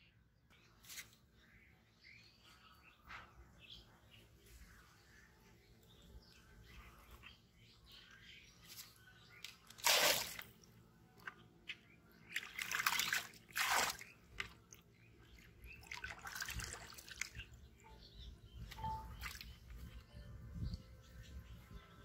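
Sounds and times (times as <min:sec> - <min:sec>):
water splashing from bucket: 0:09.7 - 0:10.6, 0:12.3 - 0:14.6, 0:15.7 - 0:17.4.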